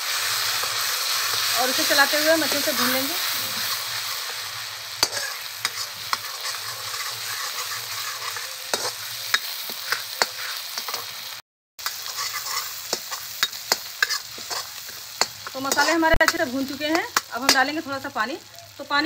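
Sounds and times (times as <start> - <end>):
spice paste sizzling in oil: 0.0 - 19.0
metal ladle clinking and scraping: 5.0 - 11.1, 11.8 - 16.0.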